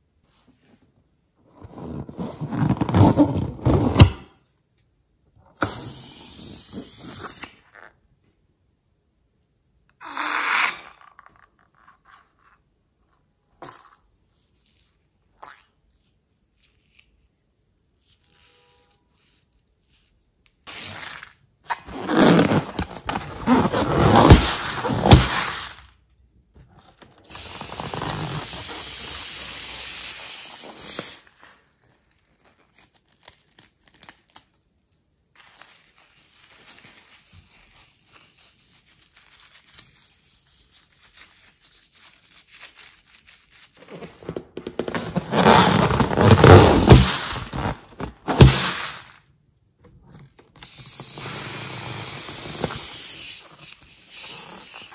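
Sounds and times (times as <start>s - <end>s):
slime squishing and crackling: 35.4s - 49.2s.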